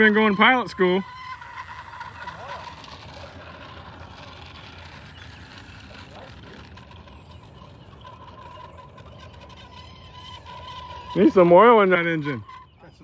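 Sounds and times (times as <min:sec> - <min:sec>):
electric model plane taxiing: 0:00.0 - 0:13.0
low steady rumble: 0:00.0 - 0:13.0
steady squeal: 0:00.0 - 0:13.0.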